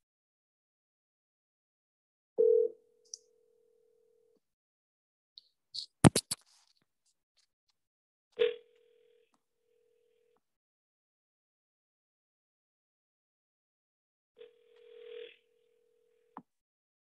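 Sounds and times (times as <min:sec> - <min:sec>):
telephone ringback tone: 0:02.4 - 0:02.8, 0:14.4 - 0:16.3.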